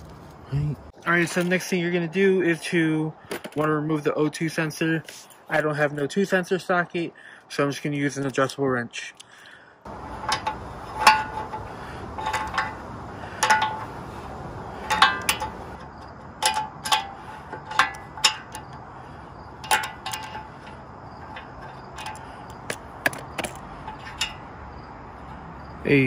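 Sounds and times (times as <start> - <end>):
wrench clinking on metal: 10.0 - 24.5.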